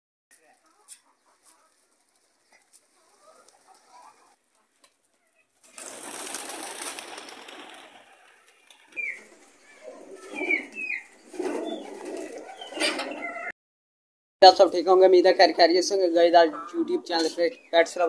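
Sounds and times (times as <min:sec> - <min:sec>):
pigeon wings flapping: 0:05.6 - 0:09.5
pigeons cooing: 0:05.7 - 0:13.5.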